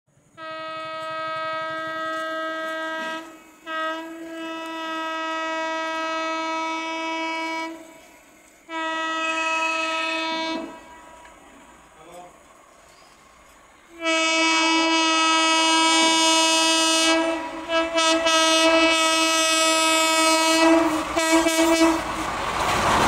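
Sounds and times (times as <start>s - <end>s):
locomotive horn blasts: 0.4s - 7.9s, 8.7s - 11.1s, 13.9s - 22.1s.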